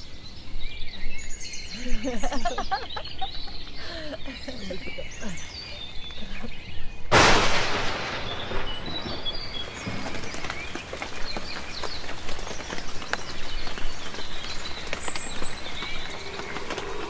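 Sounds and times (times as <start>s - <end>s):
small birds chirping: 0.0s - 7.1s, 7.8s - 17.0s
clicks and crackles: 7.2s - 17.0s
rush of noise: 15.5s - 17.0s.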